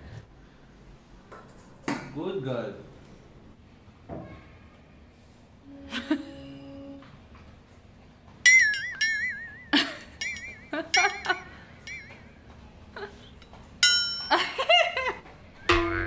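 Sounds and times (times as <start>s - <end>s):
metal dog bowl clinking and ringing: 8.5s - 12.4s, 13.4s - 14.4s.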